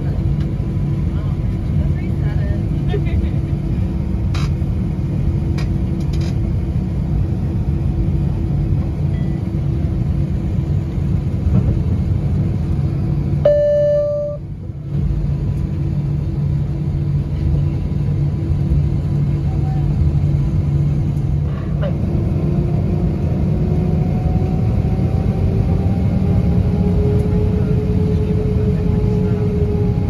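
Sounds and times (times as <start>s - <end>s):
airplane cabin rumble: 0.0s - 30.0s
flat beep: 13.4s - 14.4s.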